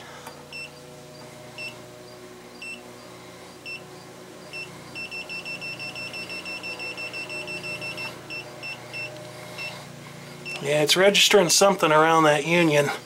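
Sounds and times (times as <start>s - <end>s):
gas leak detector beeping: 0.2s - 0.9s, 1.5s - 1.9s, 2.6s - 3.0s, 3.6s - 10.9s.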